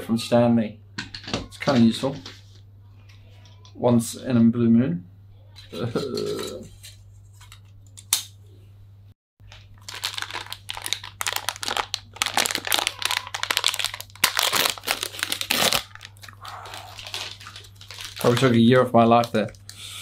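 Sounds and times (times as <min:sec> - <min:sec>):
plastic wrapping crinkling and tearing: 0:09.5 - 0:19.7.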